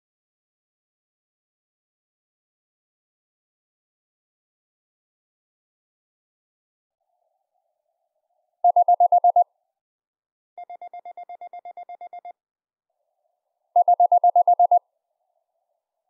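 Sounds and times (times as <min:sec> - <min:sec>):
morse code beeping: 0:08.7 - 0:09.4, 0:10.6 - 0:12.3, 0:13.8 - 0:14.8.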